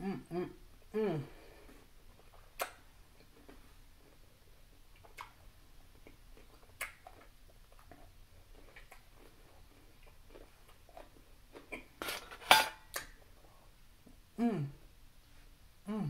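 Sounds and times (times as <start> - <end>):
person chewing food: 1.5 - 12.0
mouth clicks: 2.6 - 2.8.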